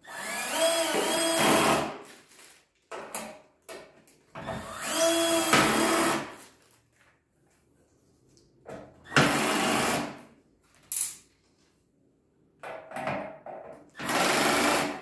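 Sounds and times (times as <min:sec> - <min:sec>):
cordless drill driving screws: 0:00.1 - 0:01.9, 0:04.6 - 0:06.3, 0:09.1 - 0:10.1, 0:14.0 - 0:15.0.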